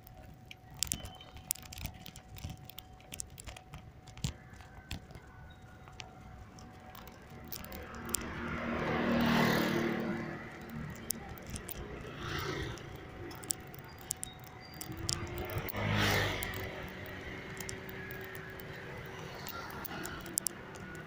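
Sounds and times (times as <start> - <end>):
crackling rustles: 0.0 - 21.0
light clicks: 0.0 - 21.0
motor vehicle passing: 6.2 - 21.0.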